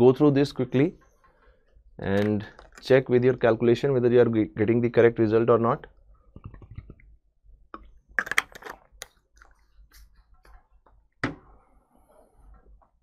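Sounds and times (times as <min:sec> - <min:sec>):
plastic bottle handling: 0:02.0 - 0:03.0
person gulping: 0:06.3 - 0:07.2.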